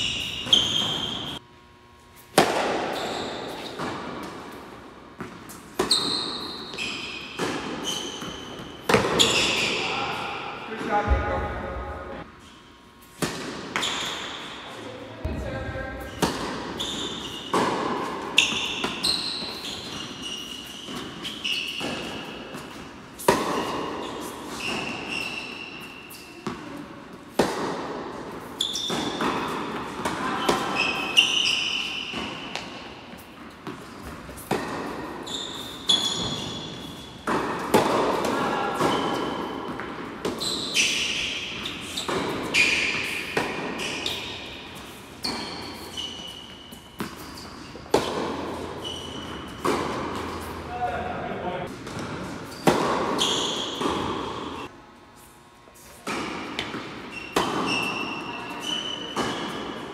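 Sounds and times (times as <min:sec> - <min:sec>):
rackets hitting tennis ball: 0:00.0 - 0:01.4, 0:02.1 - 0:59.9
shoe squeaks: 0:00.0 - 0:01.4, 0:02.9 - 0:03.8, 0:05.8 - 0:11.0, 0:13.8 - 0:15.0, 0:15.9 - 0:26.8, 0:28.4 - 0:37.4, 0:38.4 - 0:50.8, 0:52.3 - 0:56.0, 0:57.0 - 0:59.9
ball bouncing on hard court: 0:05.2 - 0:12.2, 0:13.2 - 0:14.4, 0:15.2 - 0:25.5, 0:26.1 - 0:50.6, 0:51.7 - 0:54.6, 0:56.0 - 0:59.8.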